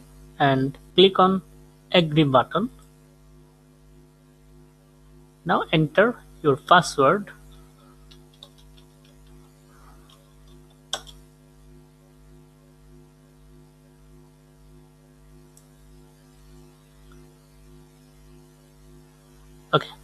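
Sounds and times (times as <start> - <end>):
low electrical hum: 0.0 - 20.0
sharp click: 10.9 - 11.2.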